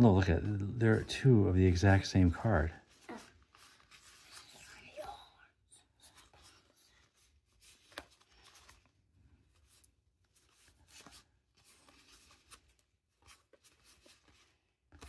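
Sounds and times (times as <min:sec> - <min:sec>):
trading cards rustling and flicking: 0:00.0 - 0:15.0.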